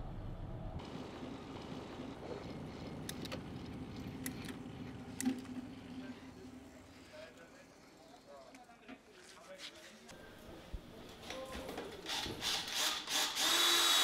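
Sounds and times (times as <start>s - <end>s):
low steady hum: 0.0s - 8.0s.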